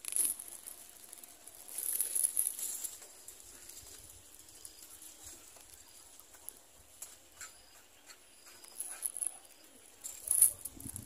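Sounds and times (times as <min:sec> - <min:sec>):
dry grass rustling and crackling: 0:00.0 - 0:11.0.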